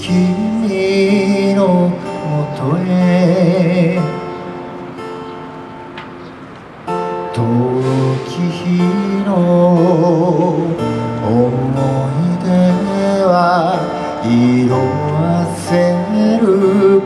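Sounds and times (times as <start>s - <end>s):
man singing a ballad: 0.0s - 4.5s, 7.2s - 17.0s
acoustic guitar: 0.0s - 17.0s.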